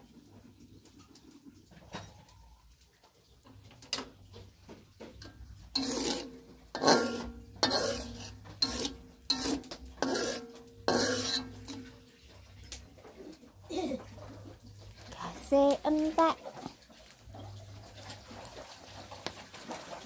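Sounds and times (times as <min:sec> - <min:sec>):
metal spatula scraping a wok: 0:05.2 - 0:13.4.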